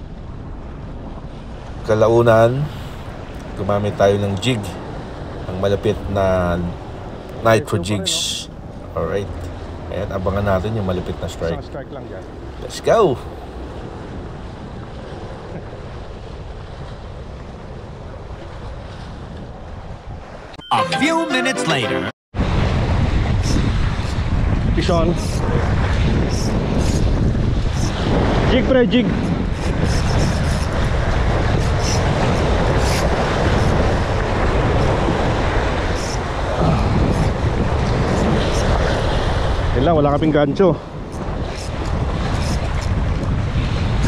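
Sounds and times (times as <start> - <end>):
wind rumbling on microphone: 0.0 - 20.6, 22.4 - 44.0
waves washing against rocks: 22.4 - 44.0.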